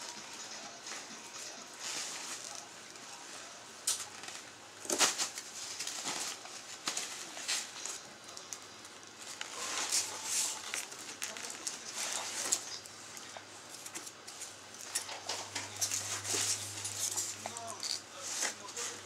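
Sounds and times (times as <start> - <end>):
packing peanuts rustling and squeaking: 3.9 - 19.0.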